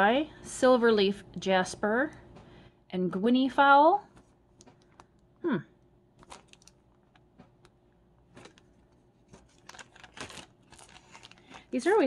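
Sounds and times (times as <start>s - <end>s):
plastic bag crinkling: 6.2s - 7.3s, 8.2s - 12.0s.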